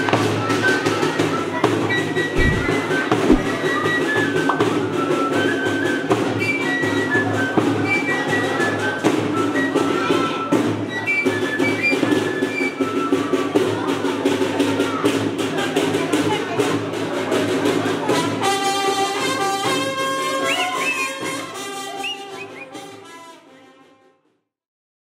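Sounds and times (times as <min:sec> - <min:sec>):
flutes playing lively melody: 0:00.0 - 0:14.6, 0:18.0 - 0:23.5
drum beating: 0:02.3 - 0:04.0.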